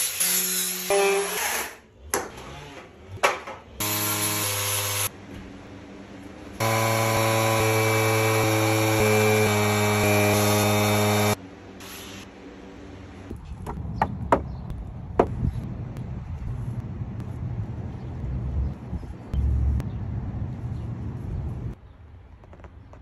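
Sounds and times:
power tool humming: 3.8s - 5.1s, 6.6s - 12.3s.

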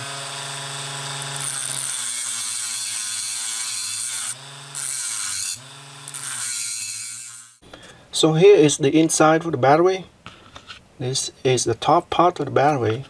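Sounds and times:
rotary tool grinding metal: 0.0s - 7.6s.

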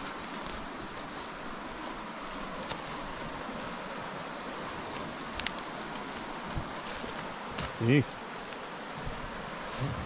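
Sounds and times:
stream rushing: 0.0s - 10.0s
twigs snapping underfoot: 0.2s - 1.3s, 2.2s - 3.6s, 4.6s - 8.7s.

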